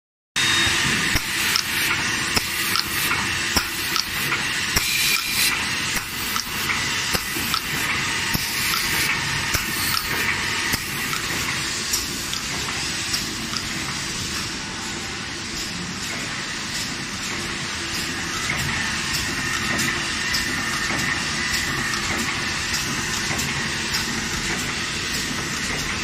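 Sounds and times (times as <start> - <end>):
printing machine hiss: 0.4 - 26.0
sharp mechanical clicks: 1.1 - 13.8.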